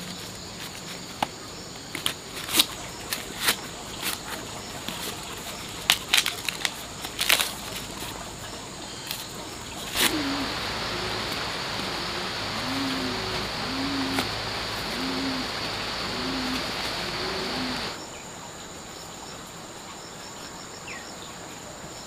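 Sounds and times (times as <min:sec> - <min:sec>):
steady hiss: 0:00.0 - 0:21.8
sharp snaps and cracks: 0:01.9 - 0:08.2, 0:09.0 - 0:15.4
low animal calls: 0:09.9 - 0:18.0.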